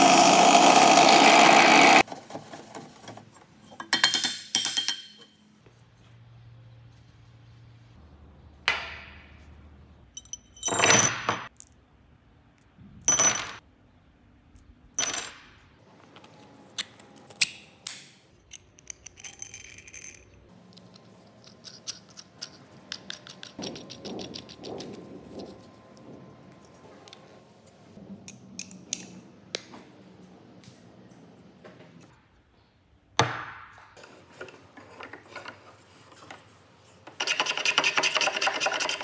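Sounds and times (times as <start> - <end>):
metal bolts and nuts clinking: 10.1 - 11.7, 18.4 - 25.0.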